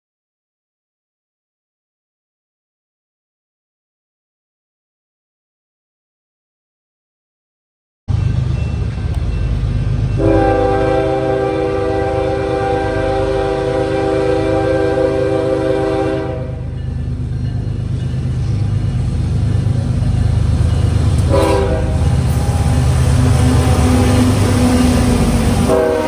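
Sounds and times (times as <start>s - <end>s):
diesel locomotive rumble: 8.1s - 26.0s
locomotive air horn blast: 10.2s - 16.7s, 21.2s - 26.0s.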